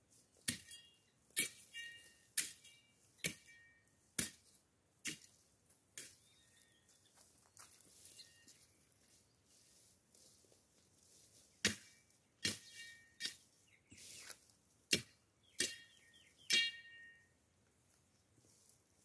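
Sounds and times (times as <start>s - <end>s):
hand tool chopping brush and soil: 0.2s - 6.7s, 9.6s - 17.2s.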